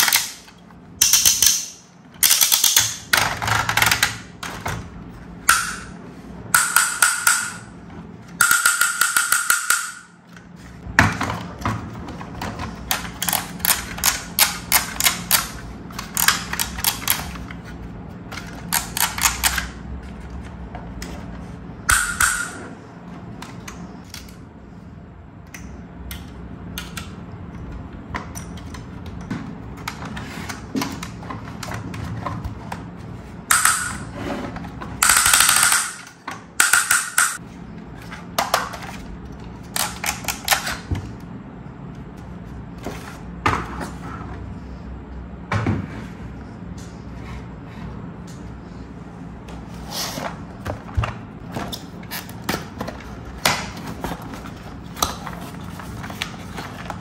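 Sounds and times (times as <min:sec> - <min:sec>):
toy ladder ratcheting clicks: 0:01.0 - 0:04.1.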